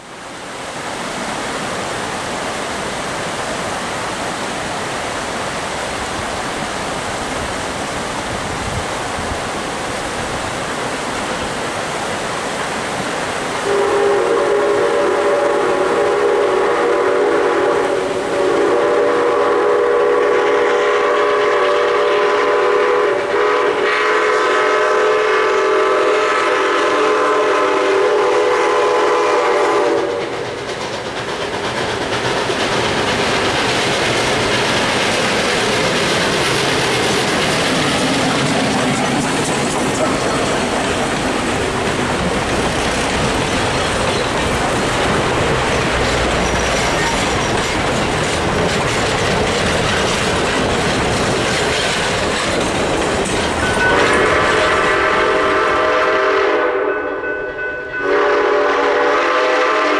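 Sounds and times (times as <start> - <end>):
rushing stream water: 0.0 - 56.7
steam whistle blasts: 13.6 - 30.4, 53.6 - 59.9.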